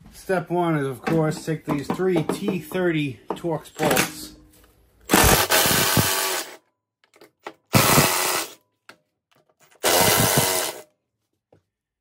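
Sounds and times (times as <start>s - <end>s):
power driver running: 5.1s - 6.6s, 7.7s - 8.6s, 9.8s - 10.8s.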